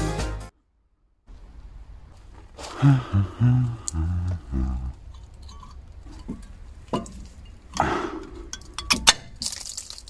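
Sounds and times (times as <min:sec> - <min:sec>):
man making short wordless sounds: 0:02.8 - 0:05.0.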